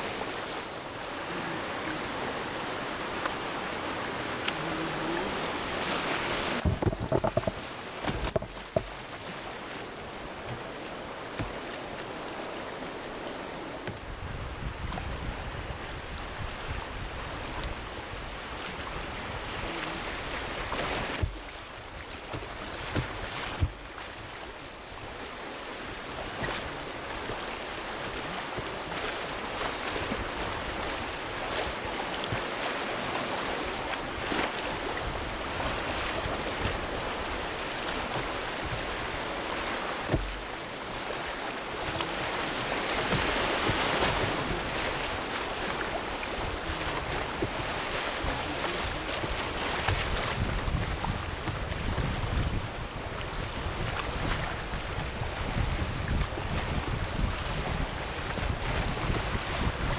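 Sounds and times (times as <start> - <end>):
rushing whitewater: 0.0 - 59.9
waves splashing against hull: 0.0 - 59.9
sharp knocks: 6.6 - 8.9.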